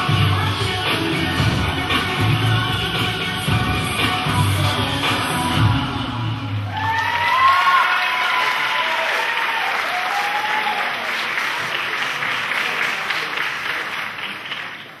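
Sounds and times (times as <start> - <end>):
voices cheering: 6.7 - 11.3
audience applauding: 6.8 - 15.0.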